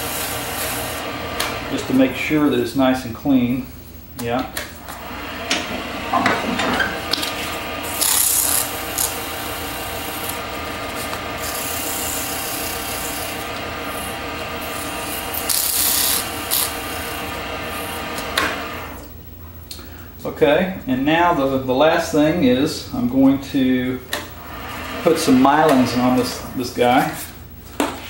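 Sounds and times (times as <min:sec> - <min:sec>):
sandpaper hissing on spinning wood: 0:00.0 - 0:01.1, 0:07.8 - 0:18.0
lathe humming: 0:00.0 - 0:02.7, 0:04.7 - 0:19.1, 0:21.8 - 0:27.5.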